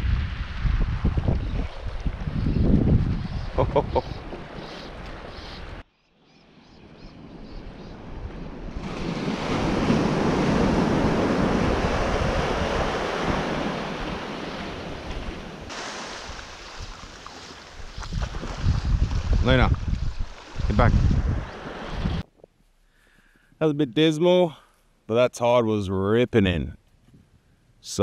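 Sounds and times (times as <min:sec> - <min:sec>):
wind on microphone: 0:00.0 - 0:05.8, 0:06.8 - 0:22.3
waves breaking on sand: 0:07.9 - 0:22.2.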